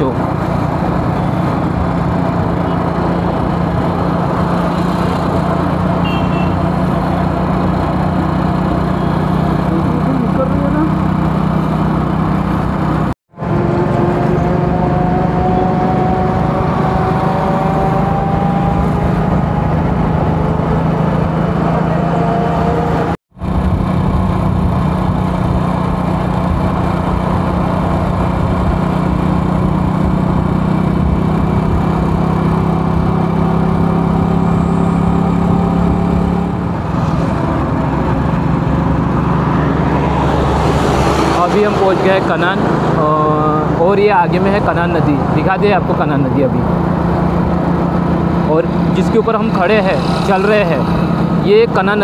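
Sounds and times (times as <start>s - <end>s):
road and wind rumble: 0.0s - 52.0s
vehicle engine running: 0.0s - 52.0s.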